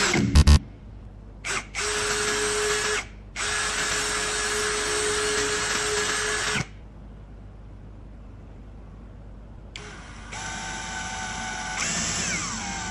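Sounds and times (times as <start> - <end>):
electric drill boring into wood: 9.8 - 12.9.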